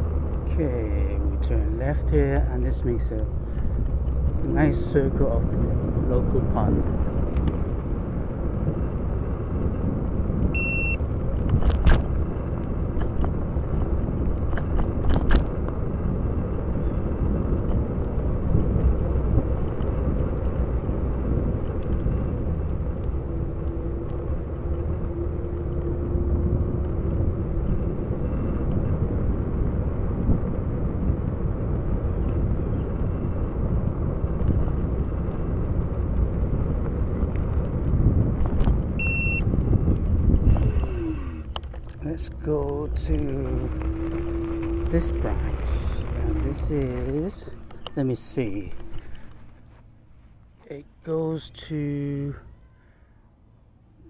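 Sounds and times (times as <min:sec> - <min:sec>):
wind on microphone: 0:00.0 - 0:49.6
tyres rolling on trail: 0:00.0 - 0:53.0
short high beep: 0:10.6 - 0:11.0, 0:39.0 - 0:39.4.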